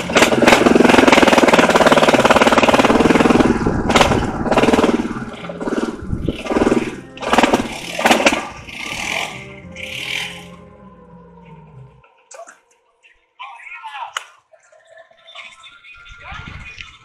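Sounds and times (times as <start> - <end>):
atv engine revving: 0.0 - 10.7.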